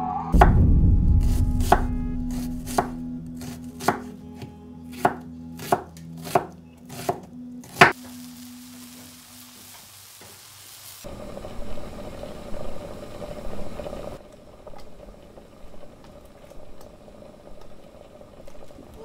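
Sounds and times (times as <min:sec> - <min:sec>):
tortillas sizzling in oil: 0:07.7 - 0:19.0
pot boiling hard: 0:07.8 - 0:19.0.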